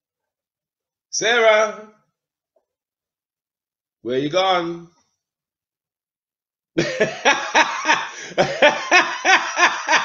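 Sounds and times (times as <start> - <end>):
man laughing heartily: 6.8 - 10.0.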